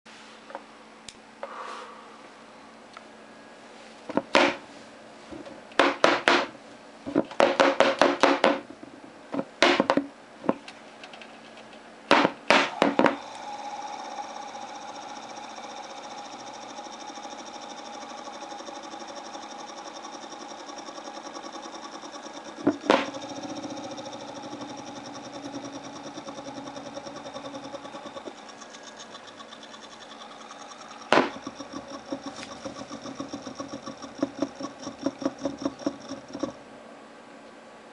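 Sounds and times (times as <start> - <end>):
pump motor whining: 12.7 - 36.6
water pump crackling clicks: 18.0 - 36.6.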